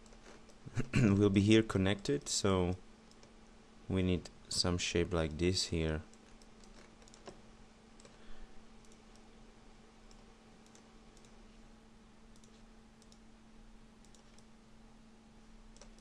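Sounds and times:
steady low hum: 0.0s - 16.0s
mouse and keyboard clicks: 6.1s - 7.4s, 15.8s - 16.0s.

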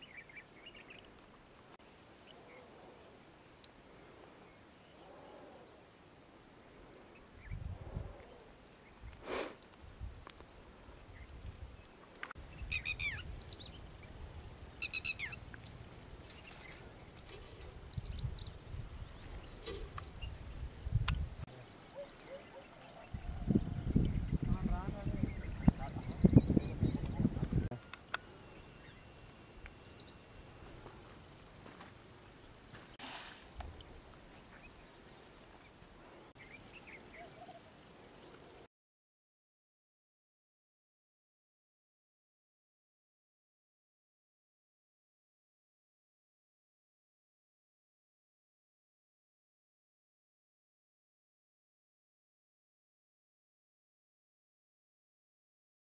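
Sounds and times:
small birds chirping: 0.0s - 31.2s, 33.8s - 38.7s
steady low hiss: 8.4s - 22.0s, 25.7s - 38.6s
faint bird chirps: 21.5s - 30.3s.

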